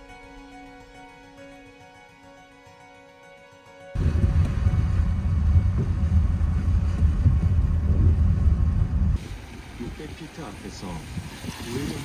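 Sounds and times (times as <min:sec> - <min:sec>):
car driving rumble: 0:04.0 - 0:11.2
road and wind noise: 0:04.0 - 0:12.0.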